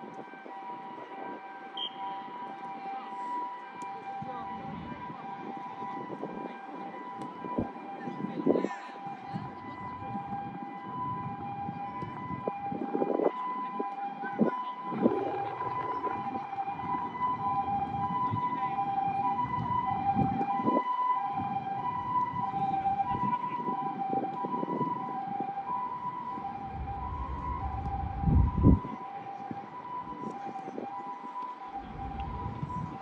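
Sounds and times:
two-tone emergency siren: 0.0 - 33.0
low rumbling noise: 14.8 - 18.1, 26.3 - 29.0, 31.7 - 33.0.

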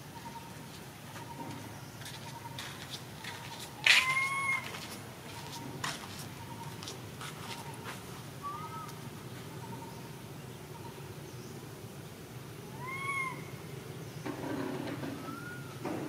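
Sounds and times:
monkey coo calls: 3.8 - 4.8, 8.4 - 9.0, 12.6 - 13.7, 15.2 - 15.9.

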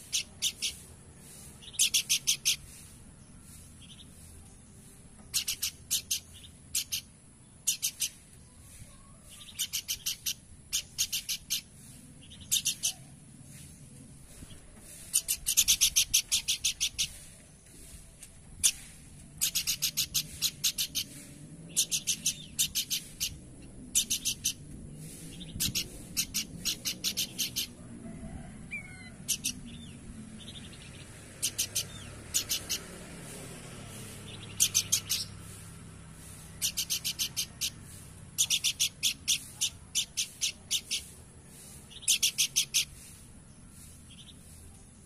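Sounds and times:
bird calling in high bursts: 0.0 - 3.6, 9.4 - 13.2, 14.9 - 17.3, 18.6 - 27.8, 31.4 - 43.9.

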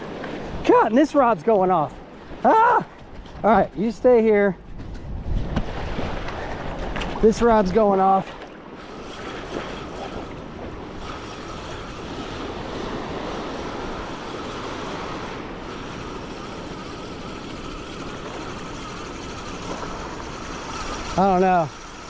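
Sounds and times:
wind on microphone: 2.2 - 22.0
small waves on sandy beach: 5.4 - 22.0.

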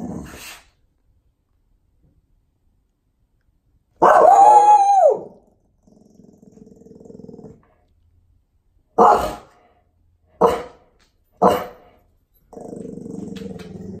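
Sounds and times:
dog growling: 0.0 - 0.7, 5.6 - 7.8, 12.5 - 14.0
dog barking: 4.0 - 4.6, 9.0 - 9.5, 10.4 - 11.8.

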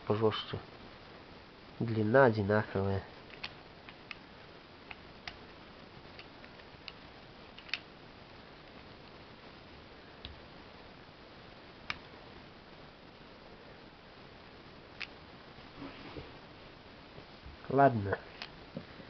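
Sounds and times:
small plastic clicks and ticks: 7.6 - 7.9.

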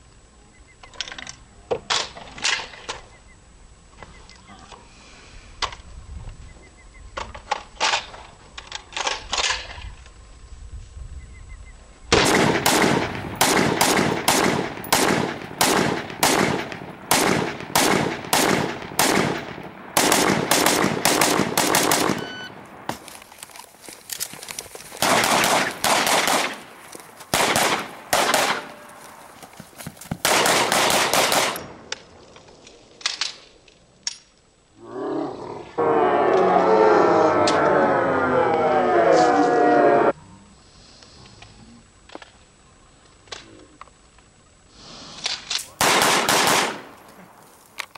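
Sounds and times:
rapid rifle fire: 12.1 - 22.3, 25.0 - 26.7, 27.3 - 28.8, 30.2 - 31.7, 45.8 - 47.0
faint scattered gunshots: 12.1 - 23.0, 25.0 - 28.9, 30.2 - 31.8, 45.8 - 47.0.

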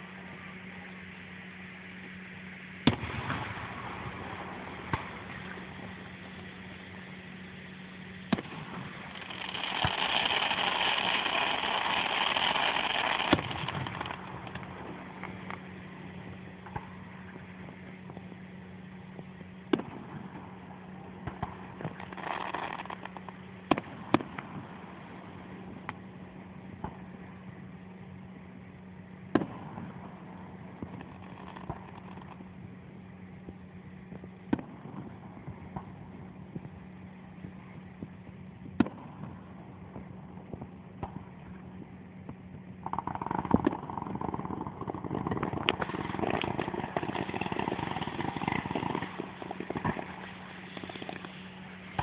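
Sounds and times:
firework crackle: 0.0 - 52.0
distant firework bangs: 8.2 - 18.3, 19.7 - 26.0, 29.3 - 32.5, 37.4 - 52.0.

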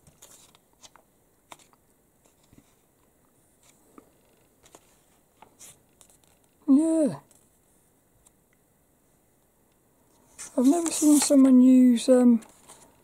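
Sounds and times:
magazine pages rustling: 0.0 - 2.9, 10.2 - 11.6, 12.3 - 13.0.

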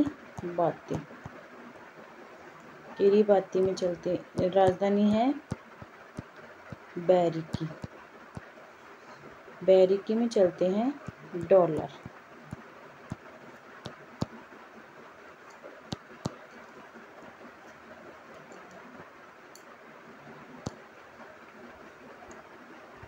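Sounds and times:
stylus tapping tablet screen: 0.0 - 1.4, 3.3 - 8.5, 10.6 - 14.4, 15.9 - 16.4
faint steady hiss: 0.0 - 23.0.

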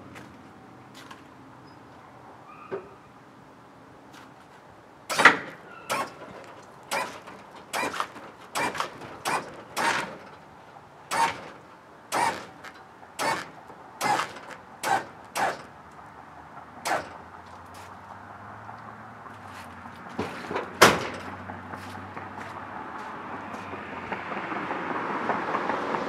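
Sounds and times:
hydraulic pump bursts: 5.1 - 10.3, 11.1 - 15.7, 16.8 - 17.2.

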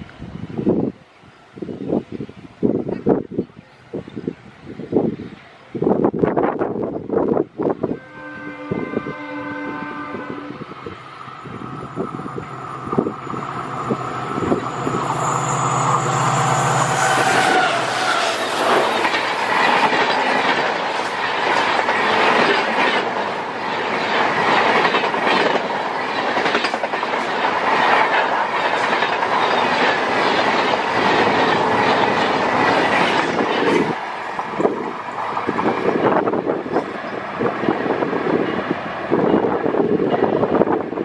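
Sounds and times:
train passing at speed: 0.0 - 41.0
wheels clacking over rail joints: 11.7 - 37.8.

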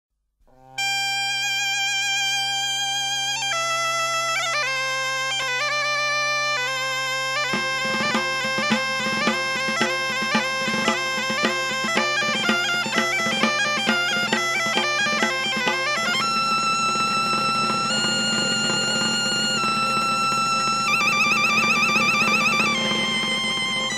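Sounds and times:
bagpipe melody over drone: 0.5 - 23.9
drum beat: 7.5 - 19.1.

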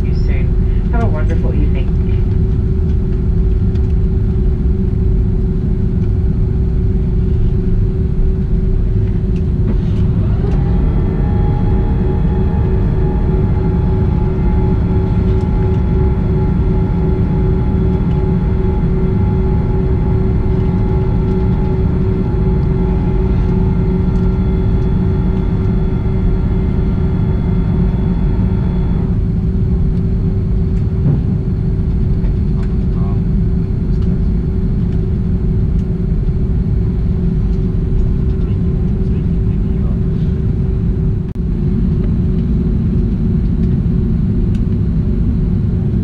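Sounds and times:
aircraft cabin rumble: 0.0 - 46.0
high-pitched whine: 0.0 - 46.0.

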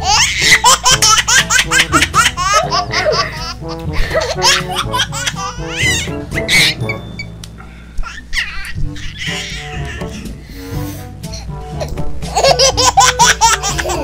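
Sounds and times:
background music: 0.0 - 14.0
rapid high-pitched laughter: 0.1 - 6.8.

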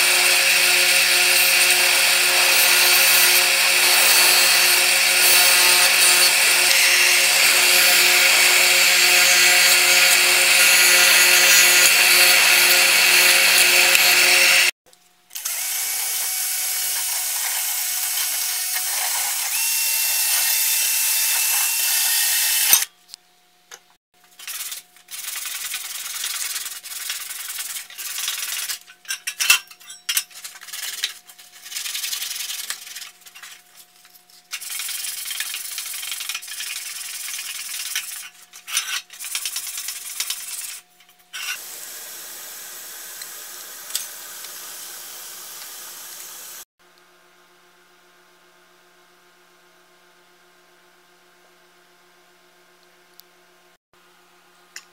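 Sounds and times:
drill spinning wire brush on steel: 0.0 - 23.0, 24.2 - 46.7
sandpaper rubbing by hand: 24.3 - 28.8, 30.3 - 41.6.

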